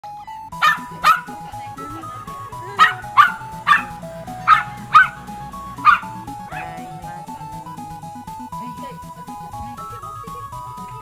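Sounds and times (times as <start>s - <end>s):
background music: 0.0s - 11.0s
small dog barking: 0.6s - 7.4s.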